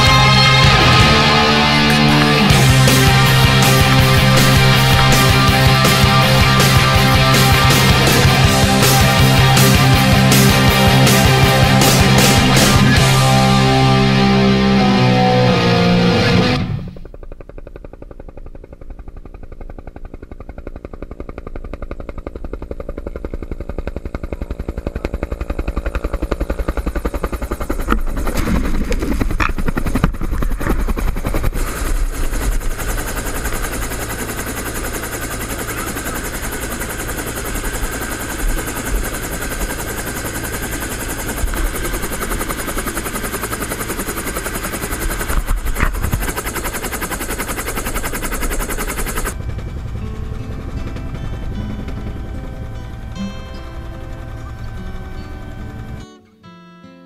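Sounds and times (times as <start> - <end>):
helicopter rotor chop: 0.0 - 56.0.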